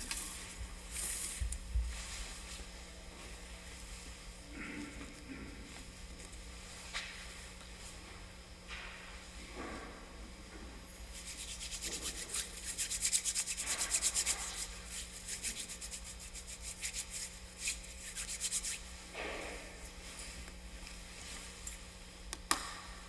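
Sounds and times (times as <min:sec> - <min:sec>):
hands rubbing together: 0:11.1 - 0:18.9.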